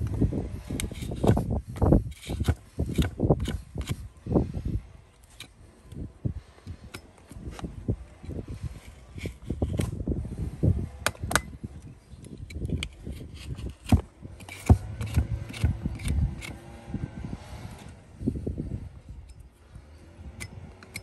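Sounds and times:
knife scraping horse hoof: 0.6 - 4.2, 6.8 - 10.0, 12.2 - 16.8, 20.4 - 21.0.

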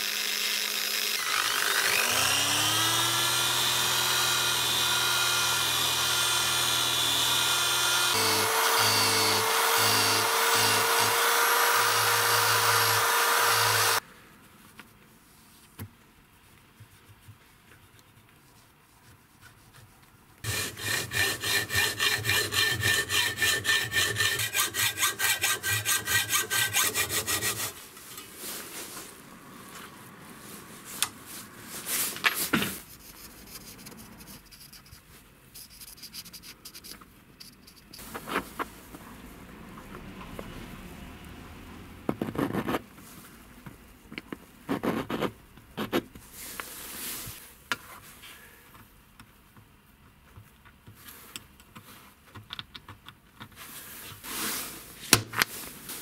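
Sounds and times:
rotary tool polishing steel blade: 0.2 - 14.0, 20.5 - 27.8
hand rubbing blade: 20.4 - 27.8.

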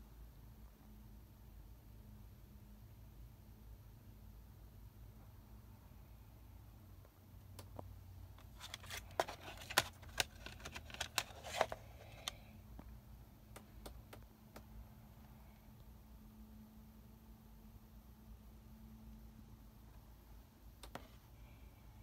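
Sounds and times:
plastic case clicking open: 8.6 - 12.4.

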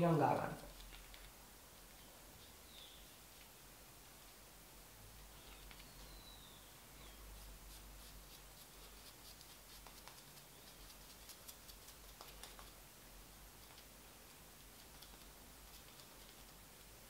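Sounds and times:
razor scratching beard stubble: 7.0 - 12.8, 14.6 - 16.6.

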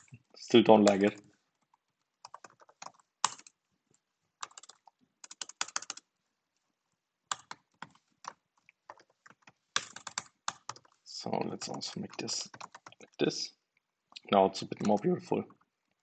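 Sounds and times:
typing on computer keyboard: 0.8 - 3.6, 4.4 - 6.1, 7.3 - 11.0, 11.6 - 13.1, 14.8 - 15.0.

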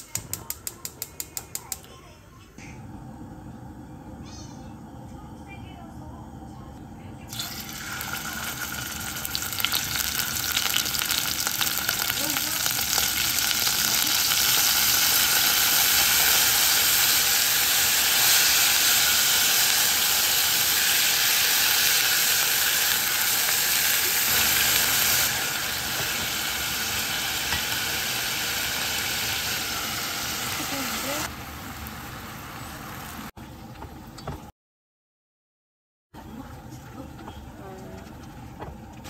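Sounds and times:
food frying in hot pan: 7.3 - 33.3.

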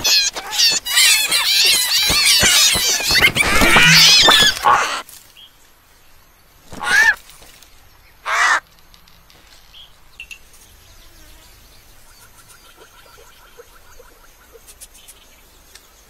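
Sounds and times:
bird squawking: 0.0 - 5.0, 6.7 - 7.2, 8.2 - 8.6.

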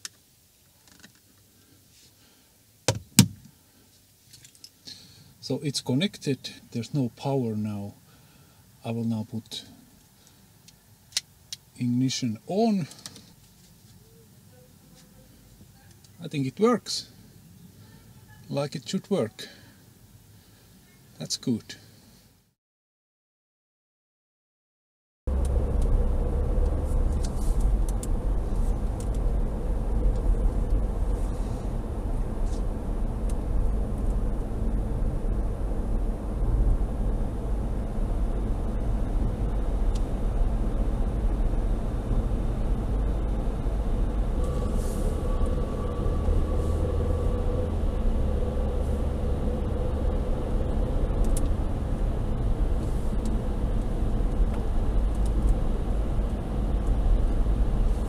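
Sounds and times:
engine and tyre rumble: 25.3 - 58.0.

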